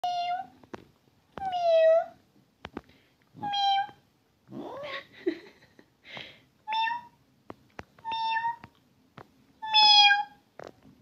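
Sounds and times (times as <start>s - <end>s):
cat meowing: 3.4s - 4.0s, 6.7s - 7.2s, 8.0s - 8.7s, 9.6s - 10.4s.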